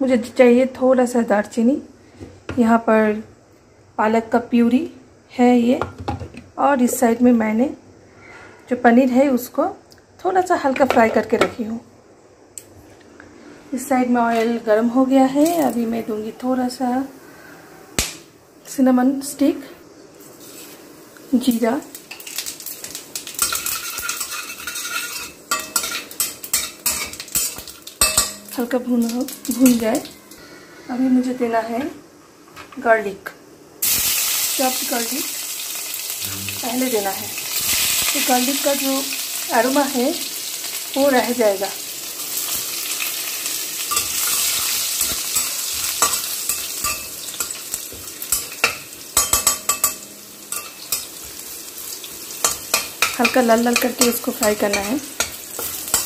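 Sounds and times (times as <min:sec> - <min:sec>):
garlic sizzling in hot oil: 0:15.0 - 0:16.1, 0:20.2 - 0:30.4, 0:33.8 - 0:56.0
metal utensil scraping a pan: 0:23.4 - 0:29.9, 0:43.8 - 0:51.4.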